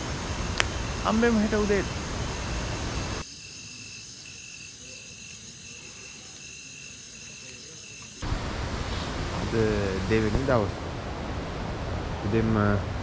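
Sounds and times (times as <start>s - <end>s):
rushing waterfall: 0.0s - 3.2s, 8.2s - 13.0s
faint insect trills: 0.0s - 9.2s
crickets chirping: 0.0s - 13.0s.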